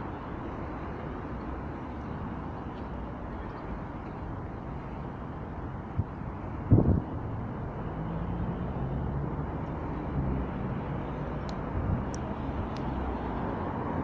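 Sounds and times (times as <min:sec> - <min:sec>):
faint high ticks: 0:11.4 - 0:12.9.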